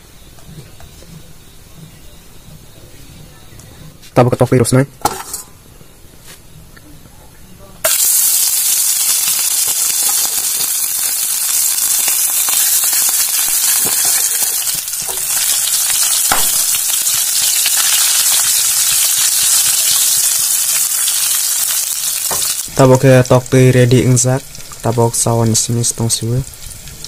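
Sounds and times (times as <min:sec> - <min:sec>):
eggs sizzling in hot oil: 0:07.8 - 0:27.0.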